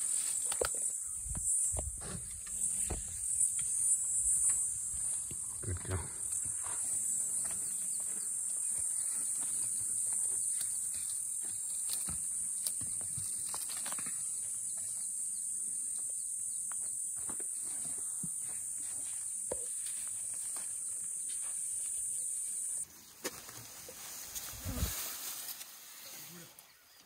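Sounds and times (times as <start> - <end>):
high-pitched insect drone: 0.0 - 22.9
crackles and rustles of grass: 0.0 - 27.0.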